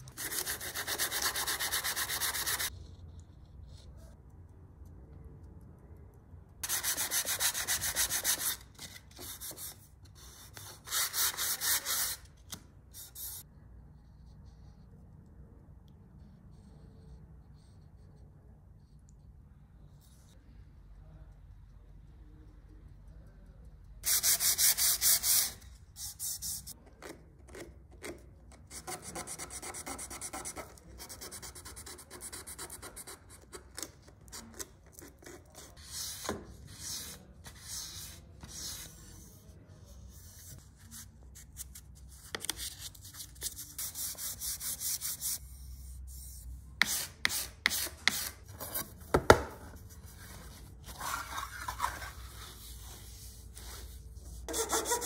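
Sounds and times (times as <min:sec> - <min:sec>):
sandpaper rubbing on wood: 0:54.5 - 0:55.0.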